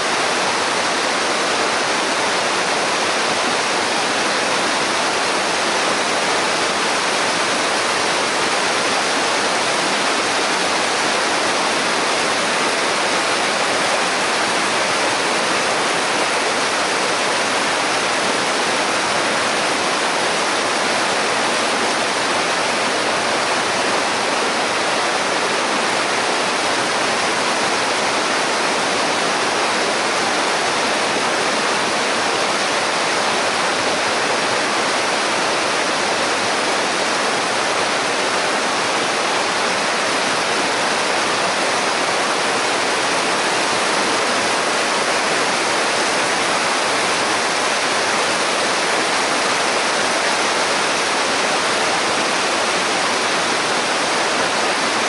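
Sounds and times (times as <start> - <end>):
waterfall rushing over boulders: 0.0 - 55.0.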